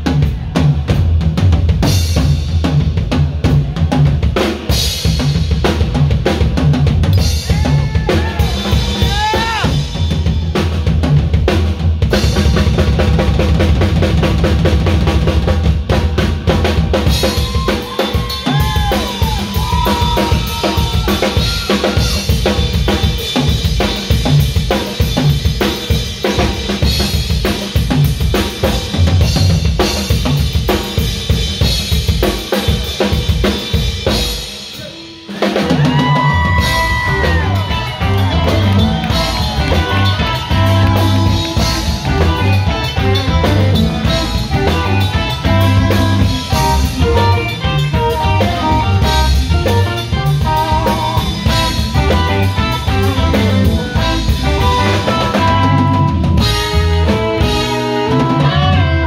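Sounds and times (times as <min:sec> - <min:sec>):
blues-rock band playing: 0:00.0 - 0:59.0
drum kit played hard: 0:00.0 - 0:59.0
electric guitar notes: 0:36.5 - 0:59.0.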